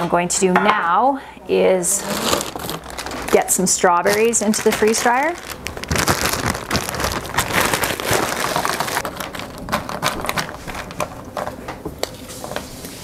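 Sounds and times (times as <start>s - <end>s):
plastic bag crinkling: 2.0s - 11.6s.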